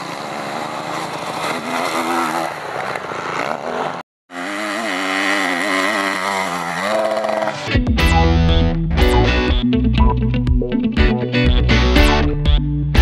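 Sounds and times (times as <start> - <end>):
dirt bike engine revving: 0.0 - 7.8.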